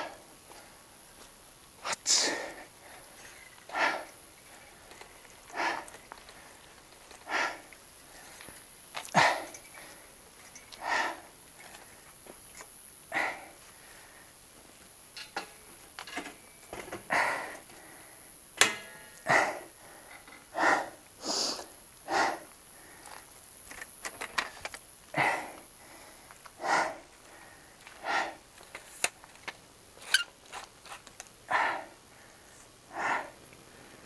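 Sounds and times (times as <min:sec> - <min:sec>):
hard breathing: 0:00.0 - 0:00.9, 0:01.8 - 0:12.2, 0:13.1 - 0:14.4, 0:16.9 - 0:18.4, 0:19.2 - 0:23.3, 0:25.1 - 0:28.7, 0:31.5 - 0:34.0.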